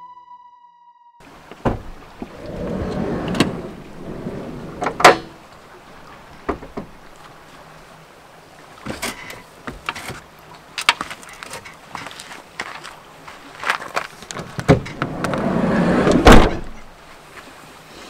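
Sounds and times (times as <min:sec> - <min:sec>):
sliding van door rolling open: 0:01.6 - 0:05.4, 0:14.6 - 0:16.9
light clicks and knocks of stepping: 0:08.9 - 0:15.4.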